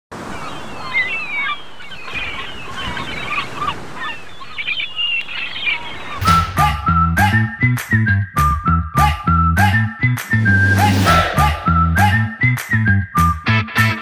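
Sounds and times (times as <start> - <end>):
birds chirping and squealing: 0.2 - 6.6
whistled tune over bass: 6.2 - 14.0.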